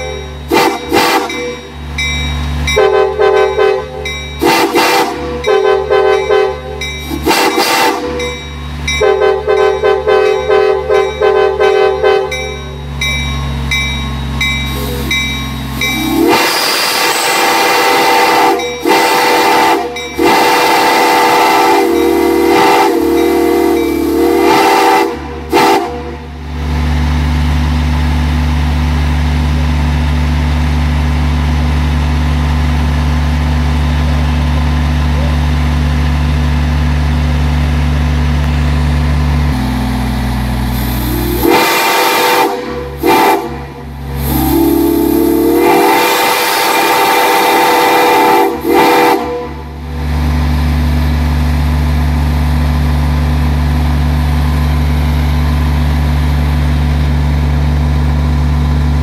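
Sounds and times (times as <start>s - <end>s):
steam whistle blasts: 0.0s - 1.7s, 2.8s - 8.4s, 9.0s - 12.4s, 15.9s - 26.3s, 41.0s - 49.7s
low machine drone: 48.3s - 59.0s.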